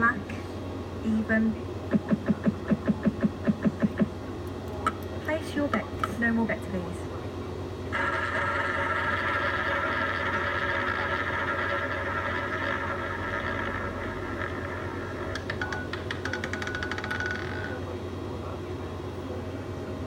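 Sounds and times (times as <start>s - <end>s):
roulette ball whirring: 8.0s - 17.8s
roulette ball clicking: 15.2s - 17.7s.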